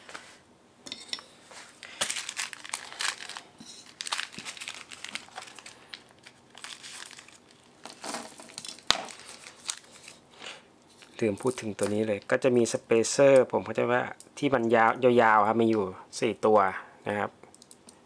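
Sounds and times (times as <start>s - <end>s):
plastic bag crinkling: 1.8s - 10.2s.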